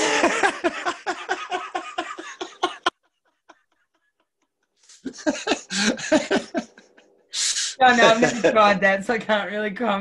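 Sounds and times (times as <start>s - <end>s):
people laughing heartily: 0.0s - 7.1s, 8.0s - 8.7s.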